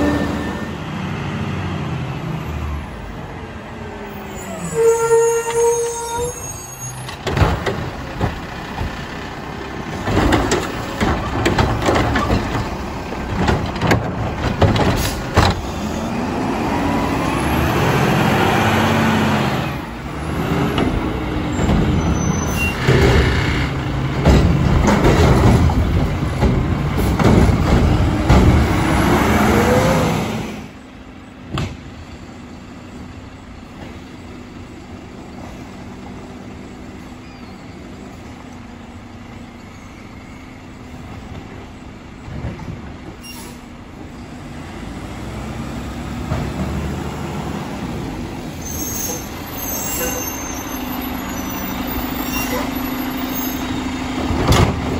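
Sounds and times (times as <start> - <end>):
distant truck engine rumble: 0.0 - 54.9
carts clanking and banging: 7.0 - 16.1, 20.6 - 29.9, 48.6 - 54.9
garbage truck engine revving: 7.2 - 30.8, 44.4 - 54.9.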